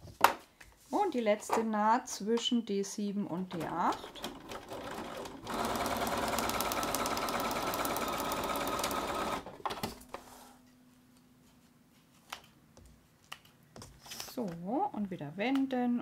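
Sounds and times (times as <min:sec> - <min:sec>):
sewing machine stitching: 0:03.5 - 0:09.6.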